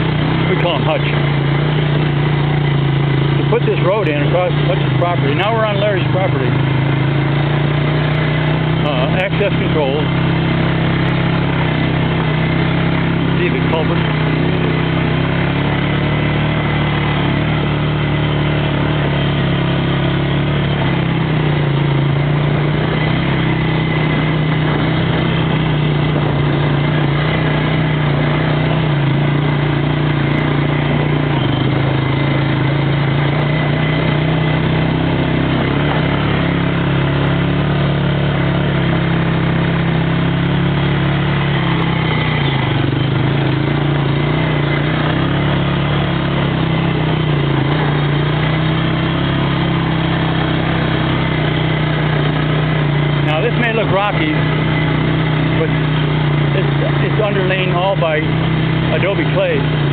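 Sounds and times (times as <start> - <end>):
atv engine running: 0.0 - 59.9.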